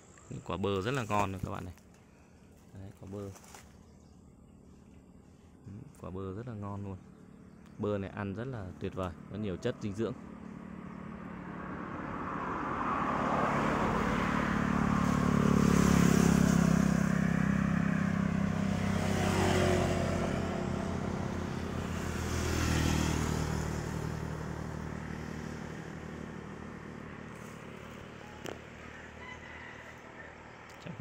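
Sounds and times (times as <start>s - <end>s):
vehicles passing by: 0.0s - 31.0s
motorbike passing: 5.8s - 31.0s.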